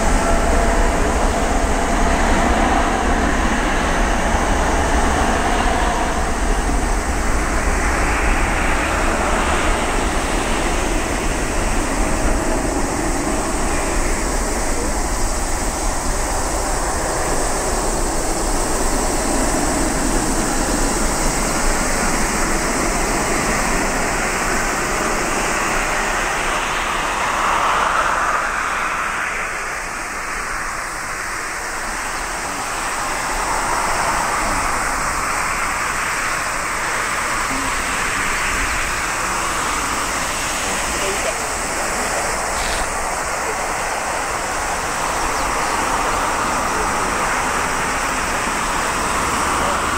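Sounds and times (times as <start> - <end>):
jet airliner engine passing: 0.0 - 49.9.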